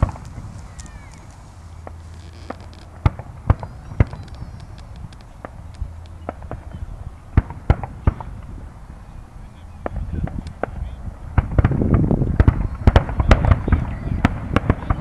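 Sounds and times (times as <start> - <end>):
firework shells bursting: 0.0 - 6.8
faint firework pops: 7.4 - 8.6, 9.8 - 15.0.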